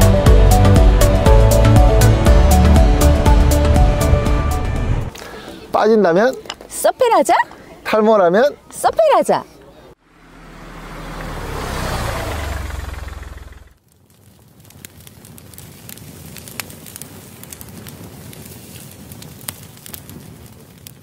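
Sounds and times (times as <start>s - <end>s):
low rumble: 0.0s - 5.1s.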